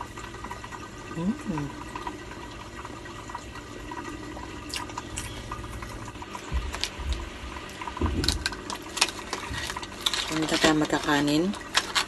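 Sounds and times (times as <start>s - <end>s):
wet eating sounds: 4.6s - 12.0s.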